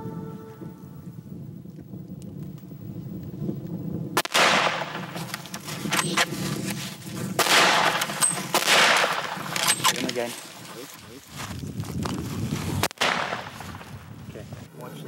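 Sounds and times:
heavy rifle shots: 4.2s - 6.4s, 7.4s - 10.4s, 12.8s - 14.0s.

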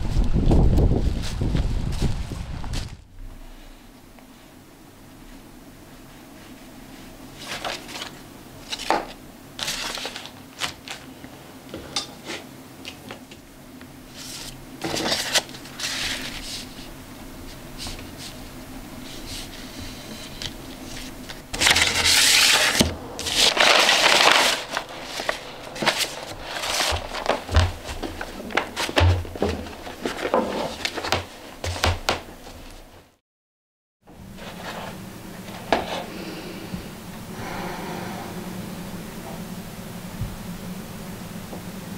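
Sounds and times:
rustling and crinkling handling: 0.0s - 13.4s, 14.1s - 33.1s.

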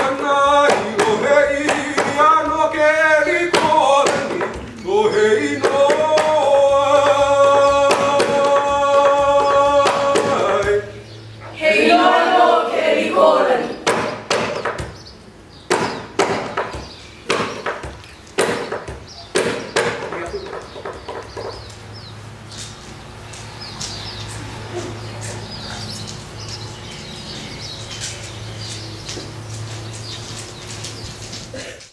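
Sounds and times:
gourd drum beats: 0.0s - 10.8s
birds chirping: 0.0s - 31.9s.

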